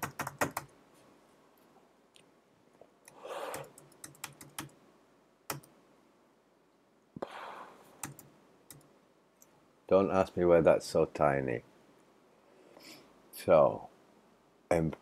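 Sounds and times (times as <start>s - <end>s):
keyboard and mouse clicks: 0.0s - 0.7s, 3.0s - 4.8s, 5.5s - 5.8s, 8.0s - 9.5s.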